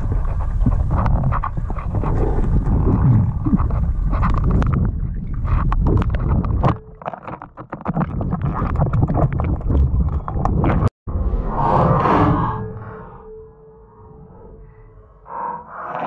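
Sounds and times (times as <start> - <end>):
irregular underwater clicks and knocks: 0.0 - 10.9
low rumble of moving water: 0.0 - 15.5.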